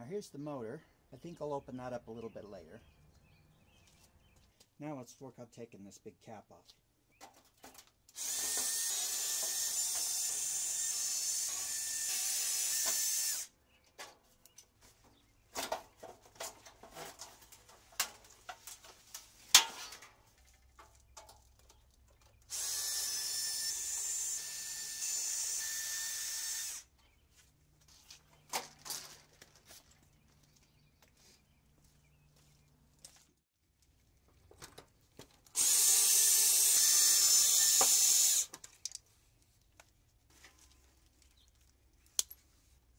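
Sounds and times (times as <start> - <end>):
cordless drill running: 8.2 - 13.5, 22.5 - 26.9, 35.6 - 38.5.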